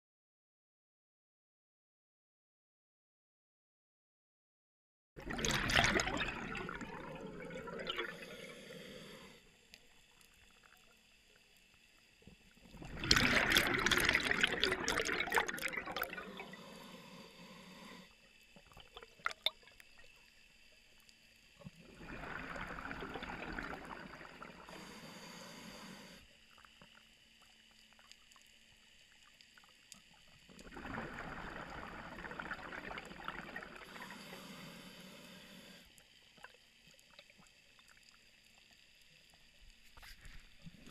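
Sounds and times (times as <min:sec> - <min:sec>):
diver's breath bubbling underwater: 0:05.2 - 0:09.4, 0:12.7 - 0:18.1, 0:21.8 - 0:26.0, 0:30.6 - 0:35.8.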